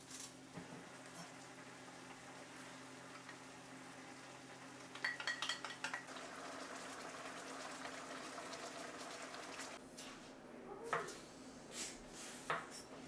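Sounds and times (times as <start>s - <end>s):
food sizzling in pan: 0.5s - 9.8s
metal utensil clinking on pan: 5.0s - 6.1s.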